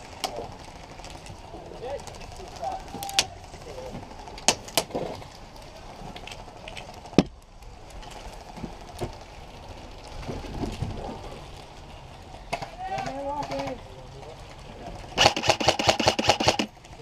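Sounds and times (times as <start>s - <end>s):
sharp airsoft cracks: 15.2s - 16.8s.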